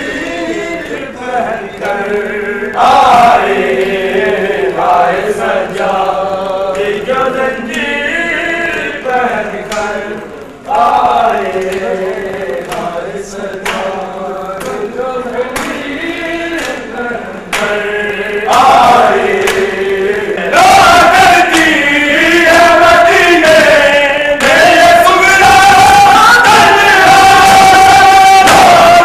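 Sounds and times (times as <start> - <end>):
crowd of men chanting: 0.0 - 29.0
chest-beating slaps: 12.7 - 14.0, 14.6 - 14.9, 15.5 - 16.0, 17.5 - 17.9, 18.5 - 20.0.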